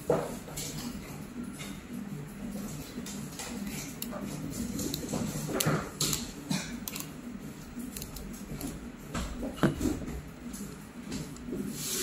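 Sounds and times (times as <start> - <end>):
plastic parts clicking: 3.4 - 7.1, 7.8 - 8.8.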